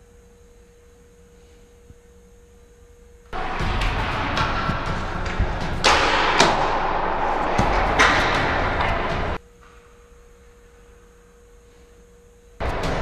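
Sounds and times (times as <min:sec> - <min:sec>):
faint electrical hum: 0:00.0 - 0:13.0
sharp thumps: 0:03.4 - 0:09.4.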